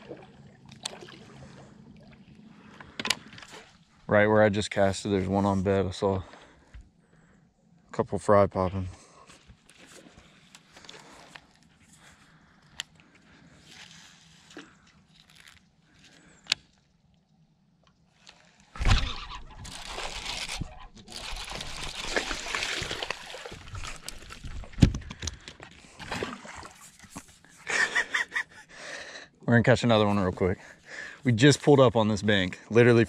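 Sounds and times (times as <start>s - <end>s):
fish splashing at water surface: 0.0s - 1.7s, 18.8s - 24.8s.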